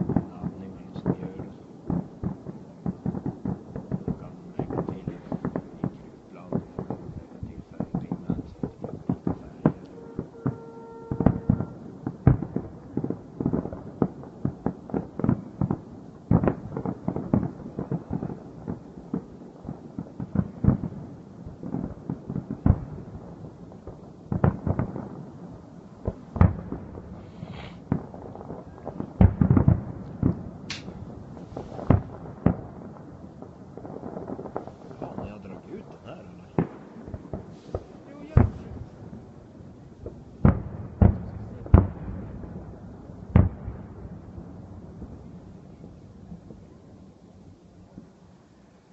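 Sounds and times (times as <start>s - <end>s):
fireworks shells bursting: 3.0s - 11.8s, 30.2s - 32.3s.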